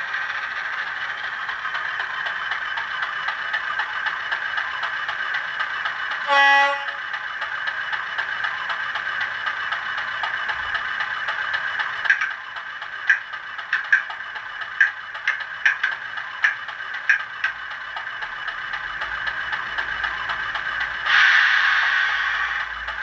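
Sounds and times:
diesel engine running: 0.0 - 23.0
locomotive horn blast: 6.3 - 7.0.

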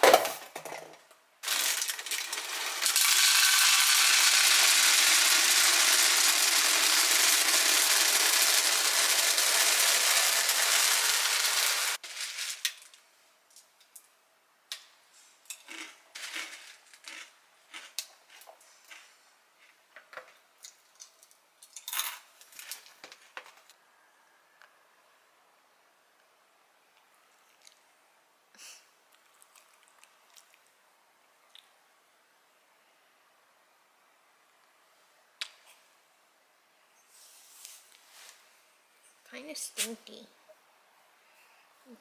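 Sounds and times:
dry pieces poured into canister: 1.4 - 13.0.

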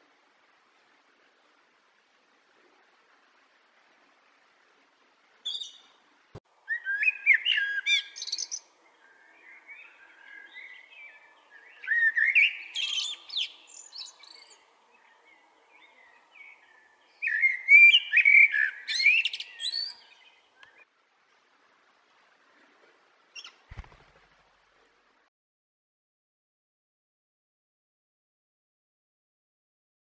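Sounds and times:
blackbird singing: 5.4 - 5.9, 6.6 - 20.8.

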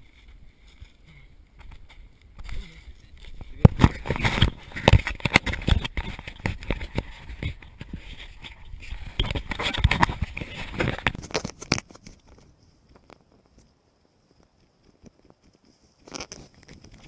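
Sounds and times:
camera handling knocks and rubbing: 3.3 - 12.4.

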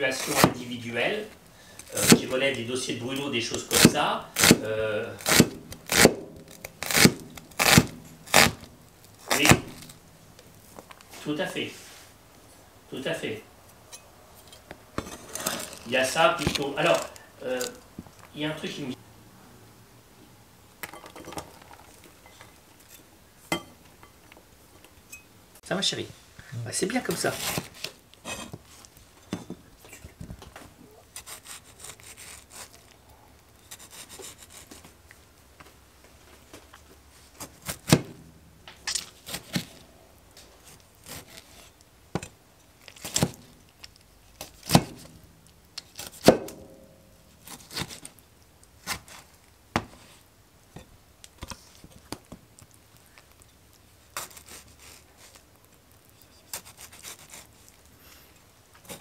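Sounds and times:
handling knocks and scraping: 0.0 - 12.2, 13.6 - 18.8, 26.9 - 32.9, 33.6 - 48.2, 48.8 - 52.7.

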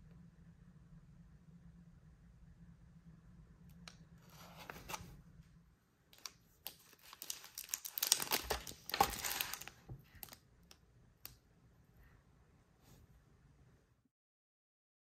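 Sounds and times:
plastic packaging crinkling: 6.2 - 10.4.

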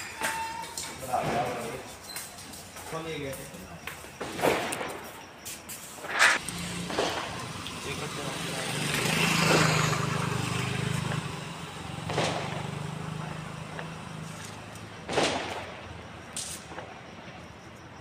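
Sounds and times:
firecrackers bursting: 0.0 - 17.7
vehicle engine passing: 6.4 - 15.8.

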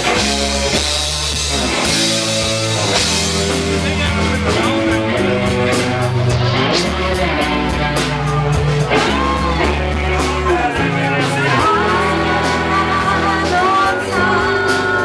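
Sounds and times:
drums and cymbals: 0.0 - 15.0
electric bass and guitar: 0.0 - 15.0
woman singing lead: 4.8 - 15.0.

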